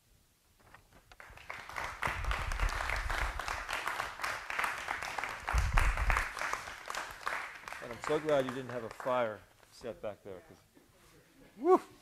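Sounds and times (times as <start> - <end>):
audience applauding: 1.1 - 9.4.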